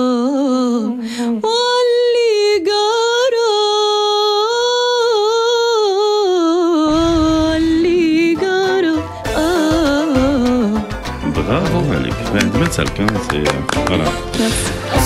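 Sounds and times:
woman singing: 0.0 - 11.0
low backing music with beat: 8.0 - 15.0.

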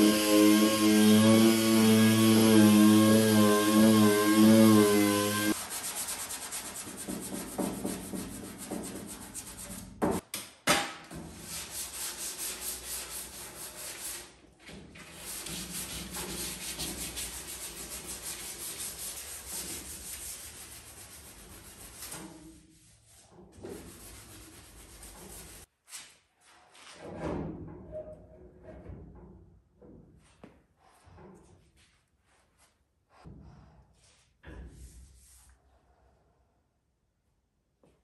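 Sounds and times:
orbital sander running: 0.0 - 5.5
sandpaper rubbing on steel: 0.0 - 10.0, 11.4 - 14.4, 15.1 - 25.7.

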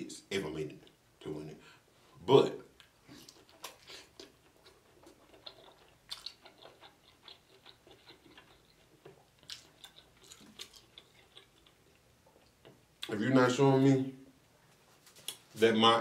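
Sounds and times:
person chewing: 2.8 - 13.1.

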